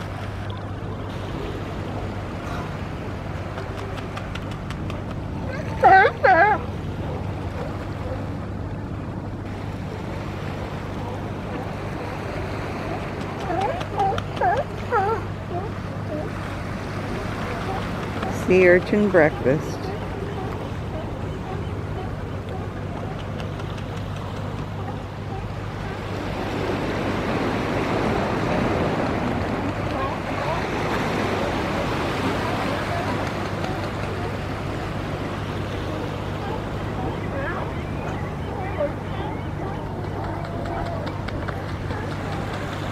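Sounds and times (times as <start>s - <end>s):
constant low hum: 0.0s - 42.9s
water: 0.0s - 42.9s
wind: 0.0s - 42.9s.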